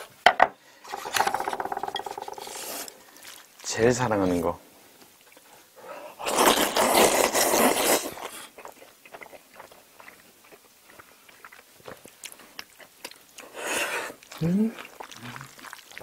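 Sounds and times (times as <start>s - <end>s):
noodles slurped loudly: 6.2s - 10.2s, 13.5s - 16.0s
chewing with small clicks: 8.2s - 13.6s, 14.2s - 16.0s.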